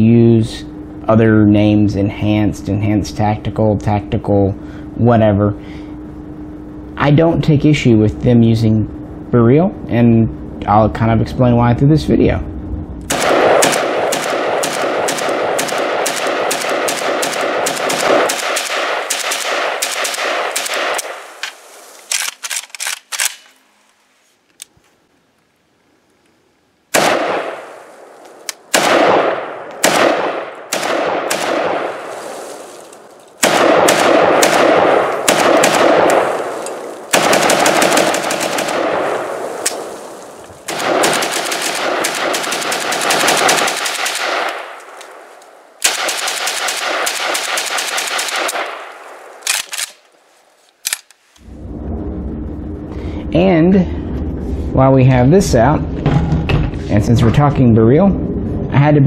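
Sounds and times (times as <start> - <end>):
rifle shots with echo: 13.1 - 21.4, 26.9 - 32.4, 33.0 - 50.0.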